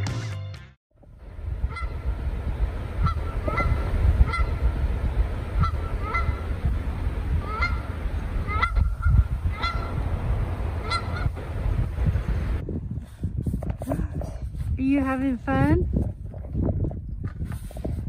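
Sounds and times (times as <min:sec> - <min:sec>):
geese honking: 0:01.6 - 0:02.2, 0:03.0 - 0:04.8, 0:05.5 - 0:06.6, 0:07.3 - 0:10.0, 0:10.8 - 0:11.4.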